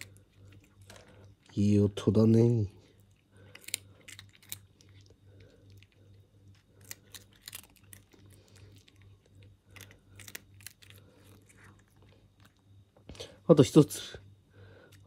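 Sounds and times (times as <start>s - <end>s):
cat crunching kibble: 0.0s - 12.8s.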